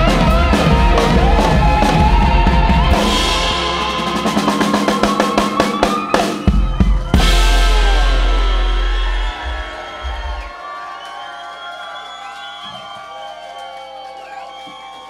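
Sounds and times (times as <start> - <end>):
blues-rock band playing: 0.0 - 10.5
drum roll: 0.0 - 10.9
harmonica wavering notes: 0.0 - 12.6
cymbal crash: 7.1 - 10.5.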